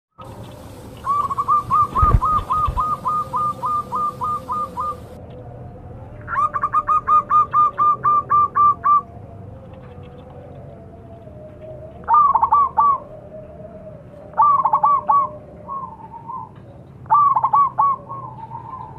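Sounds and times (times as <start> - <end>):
dove cooing: 0.3 - 5.2, 6.2 - 18.9
low thumps: 1.7 - 3.0.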